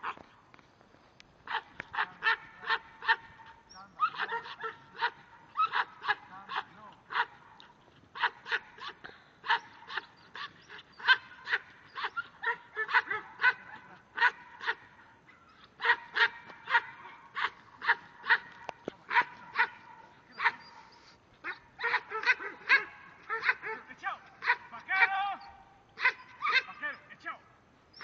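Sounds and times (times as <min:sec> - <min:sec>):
dog barking: 0:01.5 - 0:27.1.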